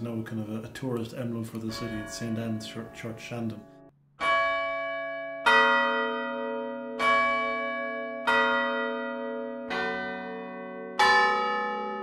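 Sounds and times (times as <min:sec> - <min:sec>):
church bells ringing: 0:01.6 - 0:12.0.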